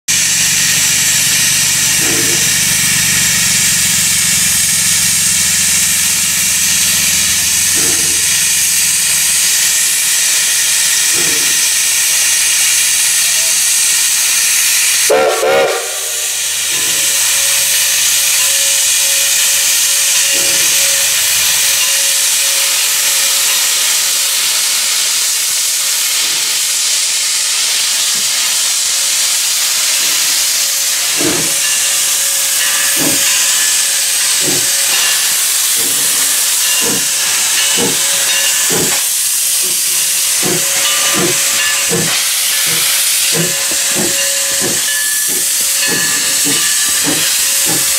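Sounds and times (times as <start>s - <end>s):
loud steam hiss: 0.1s - 47.9s
steam locomotive exhaust chuffs: 0.1s - 47.9s
steam whistle blast: 15.0s - 16.5s.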